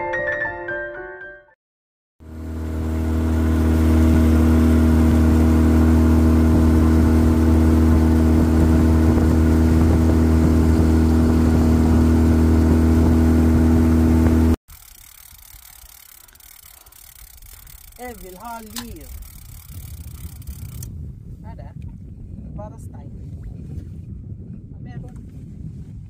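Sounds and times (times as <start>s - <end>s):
water rushing along hull: 2.2s - 14.6s
motorboat engine running: 2.2s - 21.1s.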